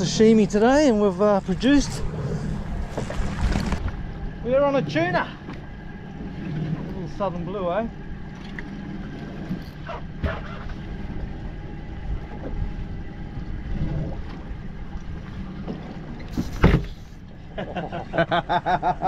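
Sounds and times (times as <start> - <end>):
boat engine rumble: 0.0 - 19.0
water wash: 0.0 - 19.0
loud short thump: 16.4 - 17.0.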